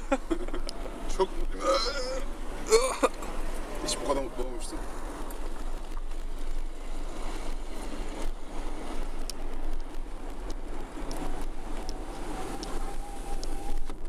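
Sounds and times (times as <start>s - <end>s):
car engine and tyre noise: 0.0s - 14.0s
faint ticks: 9.2s - 12.8s.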